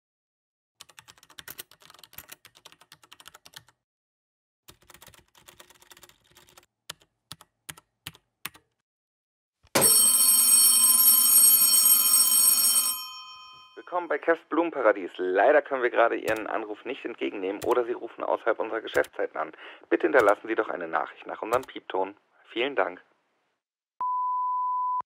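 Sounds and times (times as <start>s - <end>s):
keyboard typing: 0.8s - 3.8s, 4.7s - 8.8s, 16.3s - 16.5s, 17.6s - 17.8s, 18.9s - 19.1s, 20.2s - 20.4s
telephone bell ringing: 9.8s - 14.0s.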